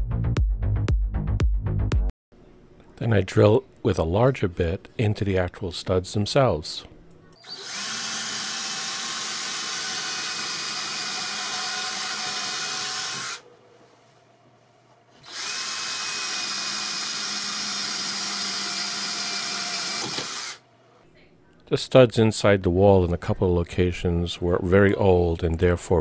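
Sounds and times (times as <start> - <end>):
cordless drill boring into wood: 7.4 - 13.4, 15.2 - 20.6.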